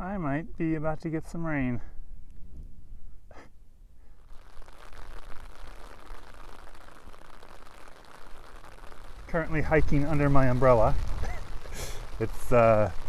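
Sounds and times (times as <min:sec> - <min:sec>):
rain pattering on umbrella: 0:04.1 - 0:13.0
short breath: 0:11.7 - 0:12.0.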